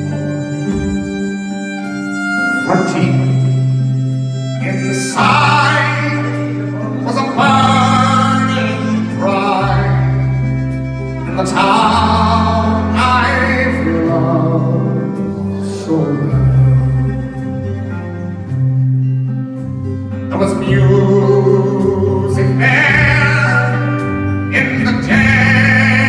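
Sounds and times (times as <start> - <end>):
bass line: 0.0 - 26.0
strummed acoustic guitar: 0.0 - 26.0
man singing: 2.6 - 3.6, 4.6 - 17.5, 20.2 - 26.0.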